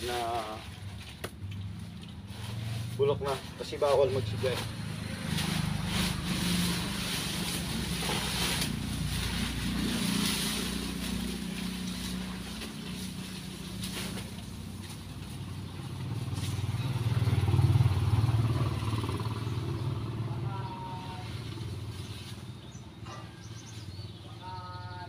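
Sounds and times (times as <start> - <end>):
dry leaves and branches rustling: 0.0 - 19.2, 20.7 - 22.8
low engine hum: 0.0 - 25.0.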